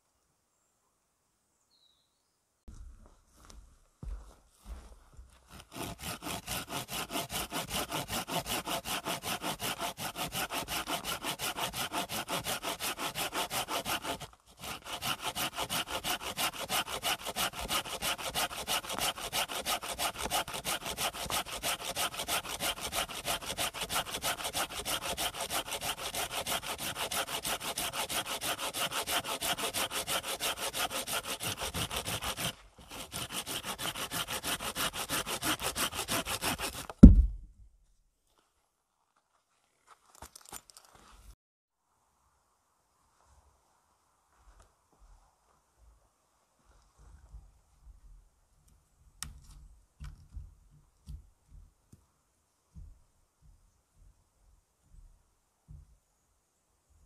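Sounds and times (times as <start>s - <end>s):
hand saw cutting wood: 5.5s - 37.3s.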